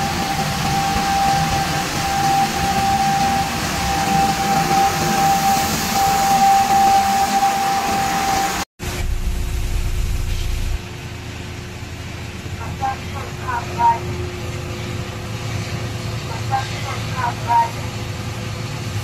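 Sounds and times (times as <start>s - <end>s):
truck engine running: 0.0s - 6.8s, 8.8s - 18.5s
high whine: 0.0s - 11.3s
low rumble: 8.8s - 11.5s.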